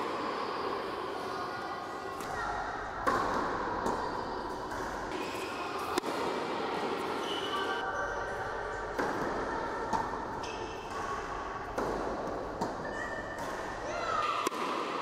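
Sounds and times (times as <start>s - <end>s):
racket hitting tennis ball: 3.0s - 7.3s, 8.8s - 15.0s.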